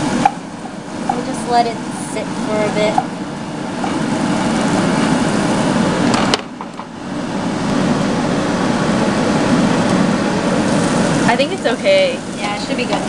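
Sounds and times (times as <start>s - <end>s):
peppers sizzling in frying pan: 10.6s - 13.0s.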